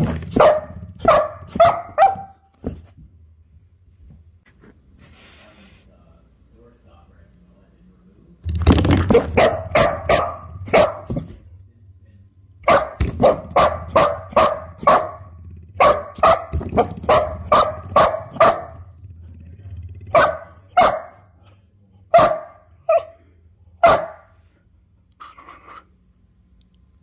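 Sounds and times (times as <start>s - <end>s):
spring door stopper twanging: 8.5s - 11.4s, 12.6s - 20.7s.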